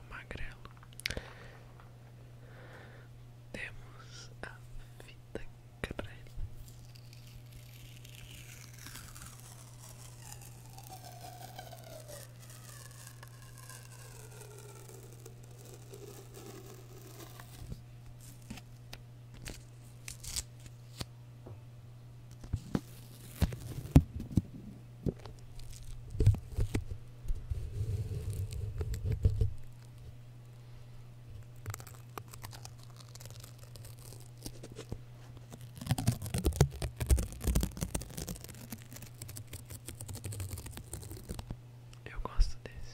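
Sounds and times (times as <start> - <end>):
low hum: 0.0 - 42.9
tape crackling on microphone: 6.6 - 18.6, 31.4 - 41.6
tape peeling off roll: 6.6 - 18.7, 19.3 - 21.1, 22.3 - 24.4, 25.1 - 30.0, 31.3 - 41.6.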